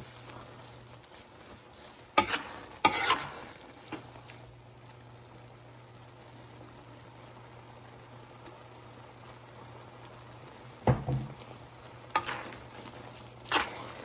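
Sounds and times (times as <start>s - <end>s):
metal spatula scraping wok: 0.0s - 4.2s, 12.1s - 14.0s
faint frying sizzle: 0.0s - 14.0s
steady low hum: 0.0s - 14.0s
sharp knocks against pan: 10.8s - 11.4s.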